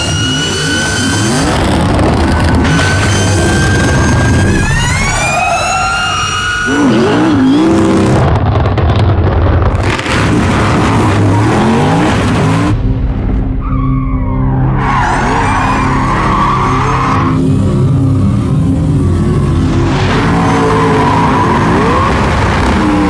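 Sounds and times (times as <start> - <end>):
tyres squealing: 0.0 - 8.3, 14.8 - 23.0.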